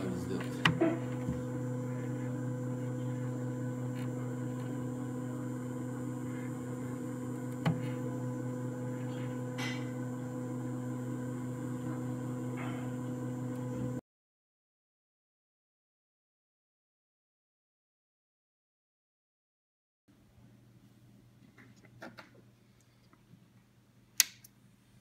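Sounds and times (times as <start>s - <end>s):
card printer humming: 0.0s - 14.0s.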